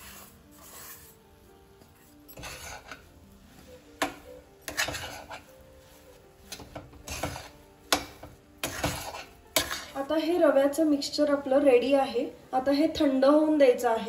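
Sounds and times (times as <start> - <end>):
metal spatula scraping a metal pan: 0.0 - 1.2, 2.0 - 10.1
soft background music: 0.0 - 14.0.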